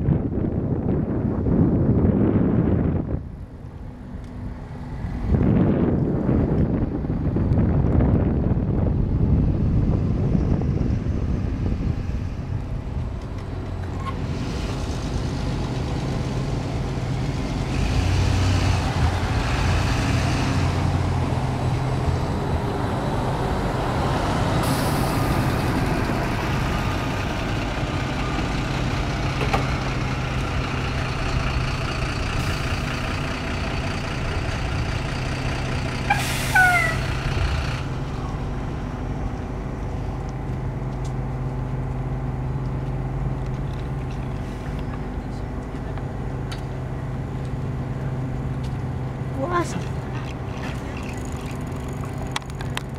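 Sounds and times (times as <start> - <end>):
bus engine humming: 0.0 - 52.9
air release hiss: 24.6 - 25.4.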